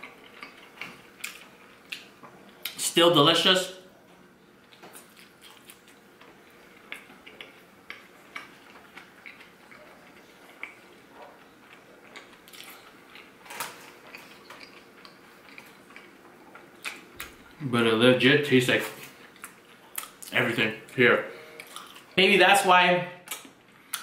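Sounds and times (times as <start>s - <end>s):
person chewing with lip smacks: 4.7s - 6.0s, 6.7s - 13.3s, 14.1s - 17.4s.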